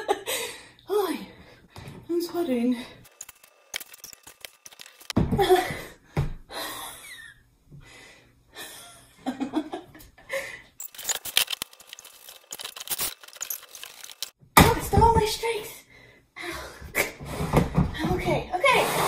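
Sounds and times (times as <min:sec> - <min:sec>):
woman laughing and panting: 0:05.4 - 0:07.3.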